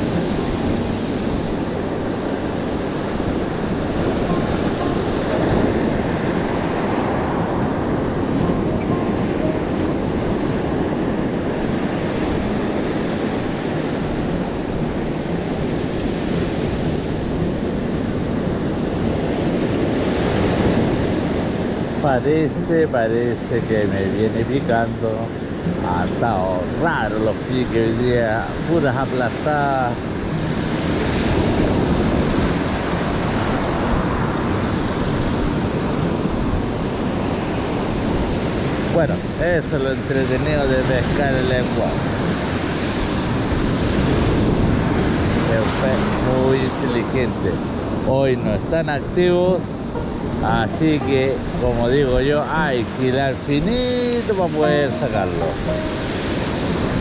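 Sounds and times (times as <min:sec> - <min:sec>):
wind rumbling on microphone: 0:00.0 - 0:22.1, 0:28.2 - 0:46.3
ocean surf: 0:00.0 - 0:57.0.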